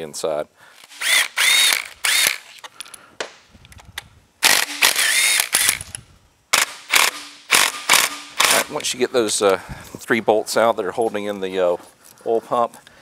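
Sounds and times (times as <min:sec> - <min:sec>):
power tool whirring: 0:00.8 - 0:02.6, 0:04.4 - 0:06.0, 0:06.6 - 0:08.8.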